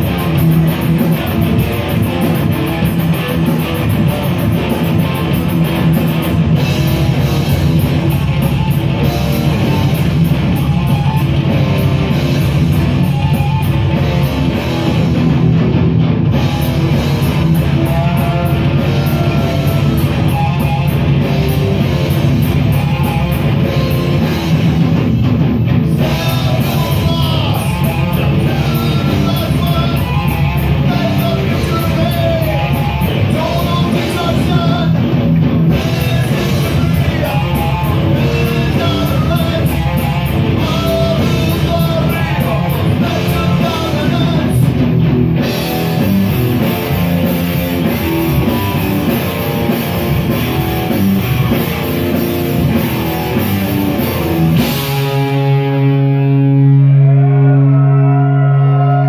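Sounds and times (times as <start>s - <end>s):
drum kit with cymbal hits: 0.0s - 57.5s
distorted electric guitars: 0.0s - 59.0s
person singing: 17.2s - 24.3s, 25.9s - 35.1s, 35.7s - 44.8s.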